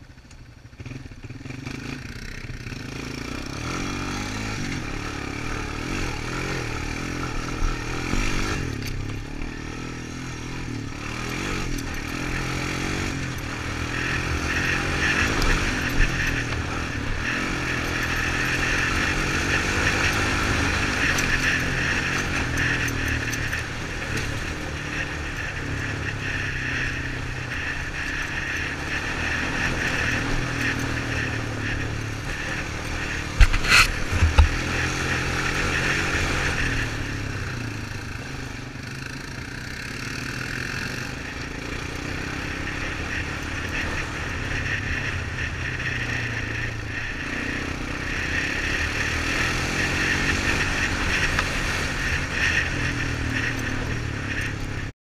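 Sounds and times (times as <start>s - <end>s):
atv engine under load: 0.0s - 54.9s.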